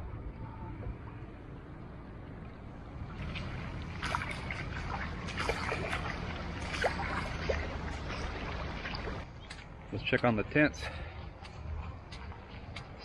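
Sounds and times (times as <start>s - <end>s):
boots splashing through water: 3.1s - 9.7s.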